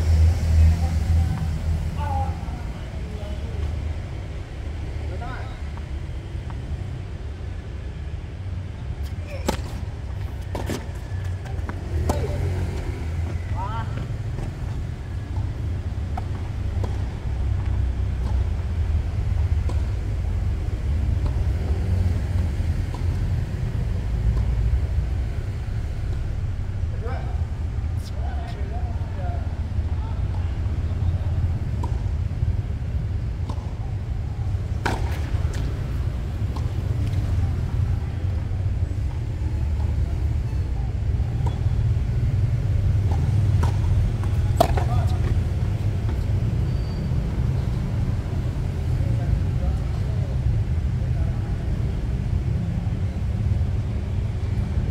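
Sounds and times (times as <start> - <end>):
tennis ball hits: 9.0 - 14.5, 34.7 - 37.3, 43.0 - 46.3.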